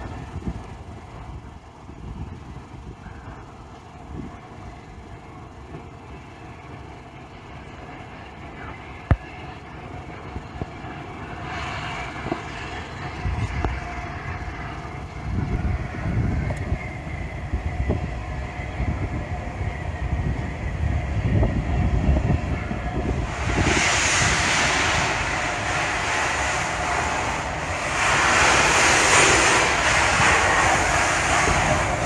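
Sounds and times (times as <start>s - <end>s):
steam locomotive exhaust beats: 0.0s - 32.0s
steam hiss: 22.6s - 32.0s.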